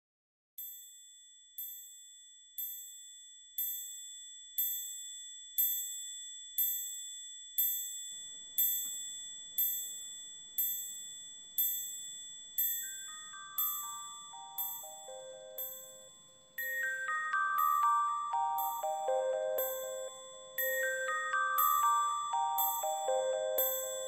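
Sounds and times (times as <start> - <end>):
high-pitched chime ringing: 12.8 - 24.0.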